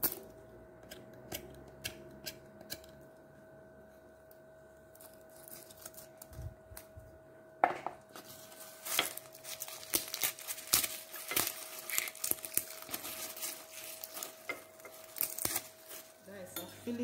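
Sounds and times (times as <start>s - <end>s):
faint steady hum: 0.0s - 17.0s
garlic skins crackling and rustling: 4.9s - 7.0s, 8.1s - 17.0s.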